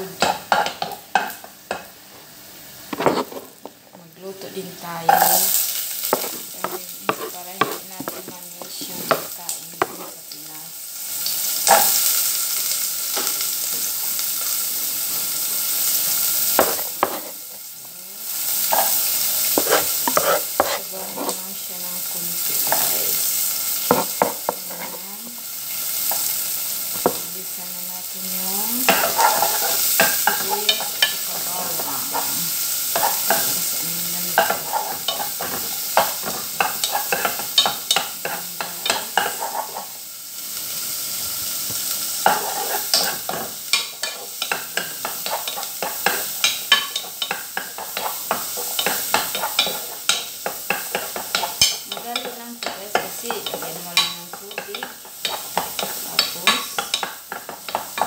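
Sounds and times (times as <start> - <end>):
garlic sizzling in oil: 0.0 - 58.0
wooden spoon knocking on pot: 6.1 - 10.1, 23.9 - 24.8.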